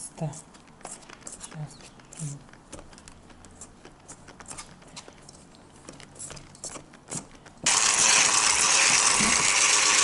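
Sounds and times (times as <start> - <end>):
electric hand mixer whirring: 7.7 - 10.0.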